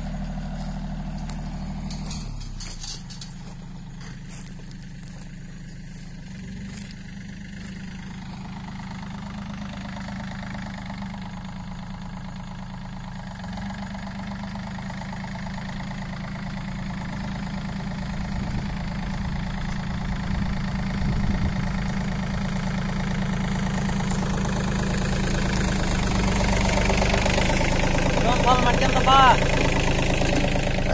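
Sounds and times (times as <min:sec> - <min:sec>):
tractor diesel engine running: 0:00.0 - 0:30.9.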